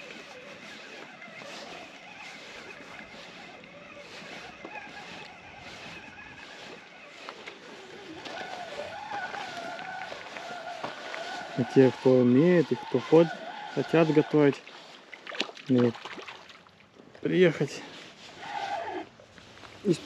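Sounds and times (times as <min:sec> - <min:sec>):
faint wavering hum: 0:00.0 - 0:15.0
waves lapping rocky shore: 0:00.0 - 0:20.0.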